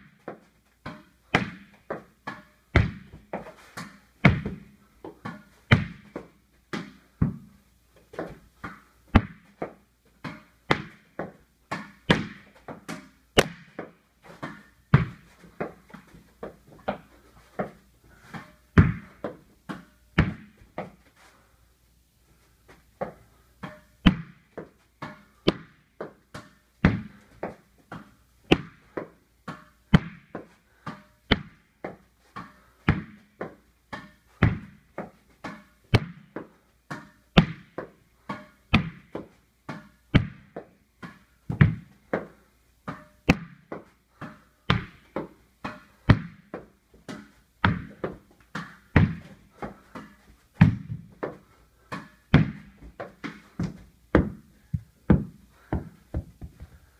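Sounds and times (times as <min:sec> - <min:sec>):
tennis ball hits and bounces: 0:00.0 - 0:07.5, 0:08.1 - 0:21.0, 0:23.0 - 0:56.8.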